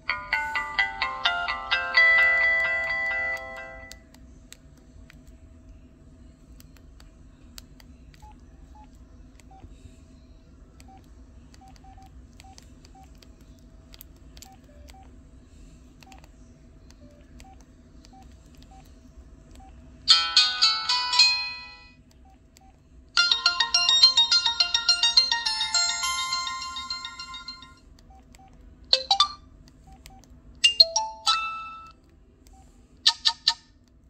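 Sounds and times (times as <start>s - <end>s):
phone keypad beeps: 19.5s - 33.6s.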